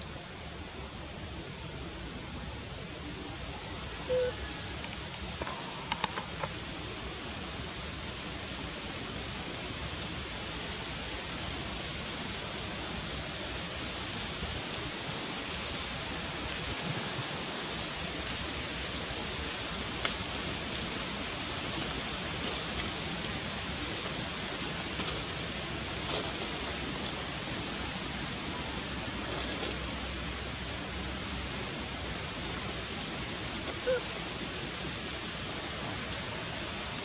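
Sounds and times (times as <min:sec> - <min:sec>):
thin high whine: 0:03.8 - 0:05.6.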